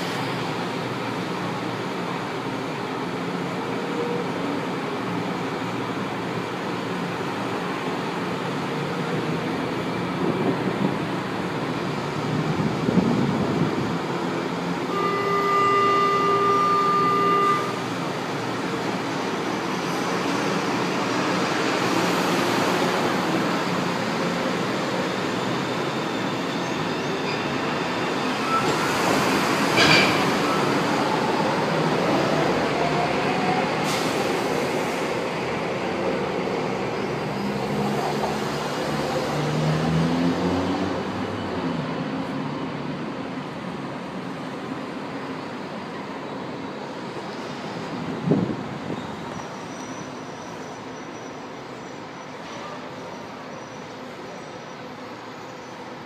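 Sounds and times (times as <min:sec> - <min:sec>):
train running through station: 0:00.0 - 0:56.0
electronic door warning tone: 0:14.9 - 0:17.8
metallic clatter of train: 0:23.3 - 0:30.9, 0:47.1 - 0:55.9.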